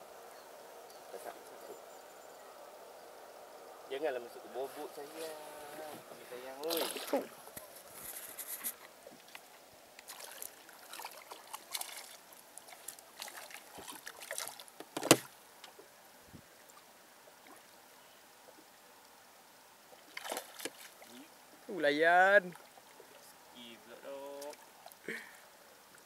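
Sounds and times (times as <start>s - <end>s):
water slapping against hull: 10.0s - 15.3s, 20.1s - 21.2s.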